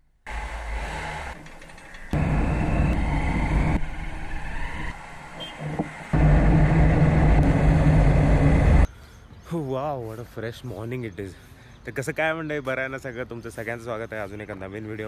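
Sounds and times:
wind rushing: 2.2s - 8.9s.

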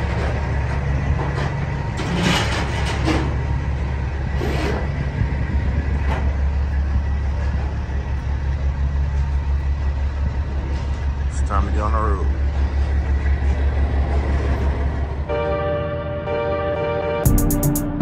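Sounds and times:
truck engine idling: 0.0s - 15.3s.

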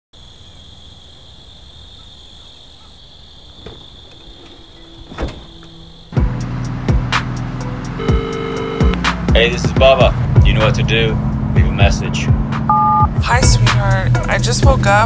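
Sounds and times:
crickets trilling: 0.2s - 6.8s
loud music: 6.2s - 10.9s, 11.6s - 15.0s.

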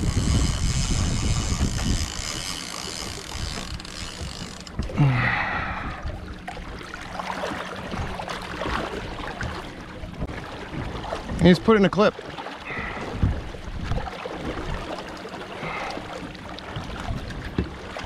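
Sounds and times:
fishing reel clicker ticking: 0.0s - 4.8s
water sloshing against boat: 0.0s - 18.0s.

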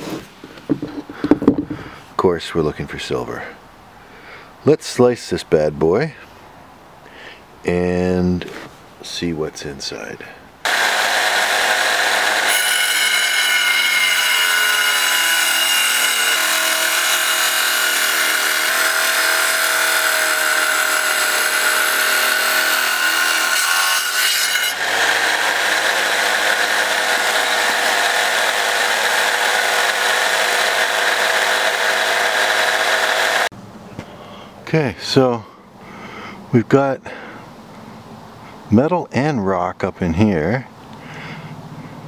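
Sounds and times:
tile saw grinding through rock: 10.7s - 33.5s.

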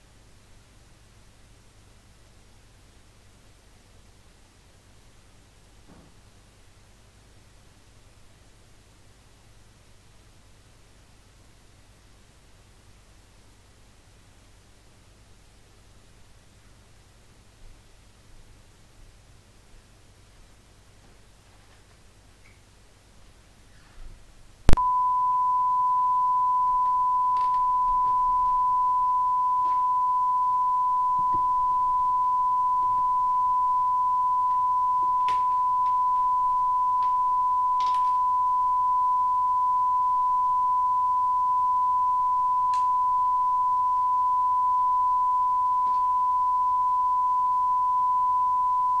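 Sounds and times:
steady test tone: 24.7s - 49.0s.

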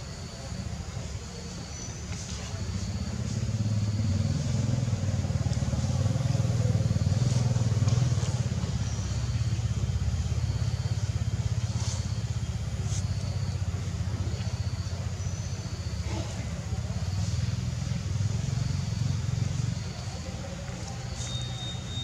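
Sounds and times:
motor engine running: 1.3s - 22.0s.

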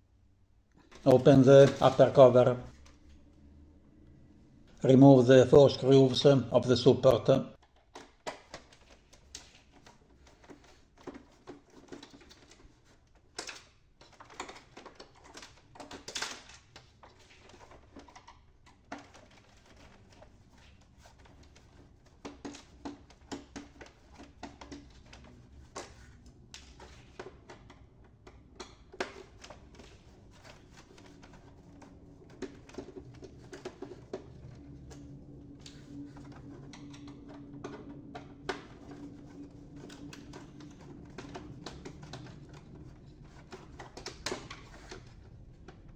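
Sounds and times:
plastic parts knocking: 7.6s - 45.9s.

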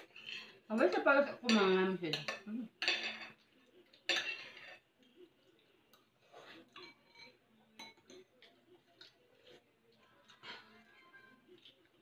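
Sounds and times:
cutlery clinking on plates: 0.0s - 4.9s, 6.5s - 8.5s.

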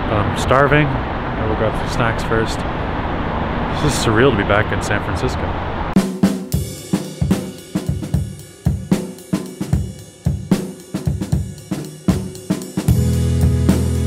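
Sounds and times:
drum kit groove: 6.0s - 14.0s.

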